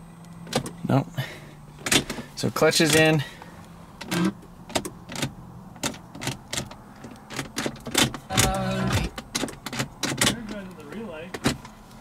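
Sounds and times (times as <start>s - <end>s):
car ignition clicks: 4.0s - 11.7s.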